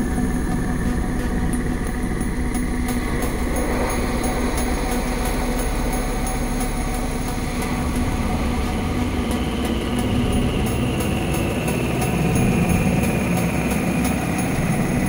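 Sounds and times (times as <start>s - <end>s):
synthesizer drone: 0.0s - 15.0s.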